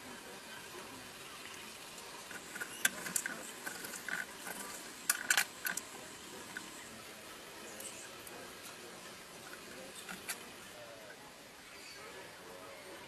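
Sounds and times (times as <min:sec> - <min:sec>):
peel crackling and snapping: 0:02.3 - 0:05.9.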